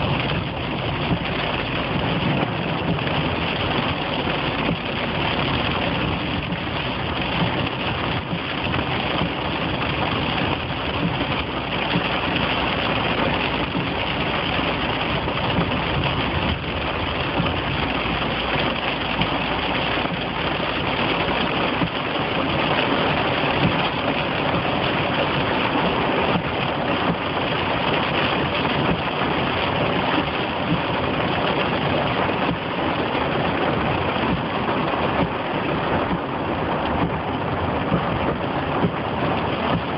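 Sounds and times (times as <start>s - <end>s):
car engine: 0.0s - 39.9s
rain on car roof: 0.0s - 39.9s
tyres on wet road: 0.0s - 39.9s.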